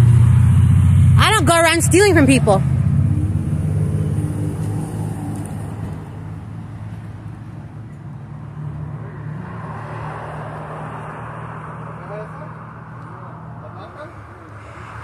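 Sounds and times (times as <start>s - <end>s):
vehicle engine running: 0.0s - 7.5s
road traffic noise: 0.0s - 15.0s.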